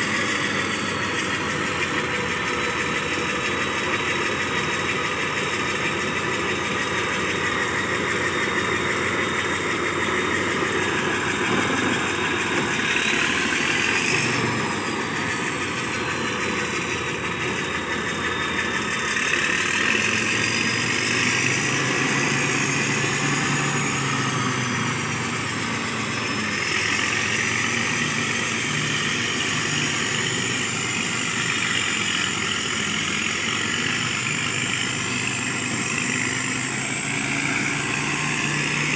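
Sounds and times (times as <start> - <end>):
diesel engine of motor grader: 0.0 - 38.9
turbocharger whistle: 0.0 - 38.9.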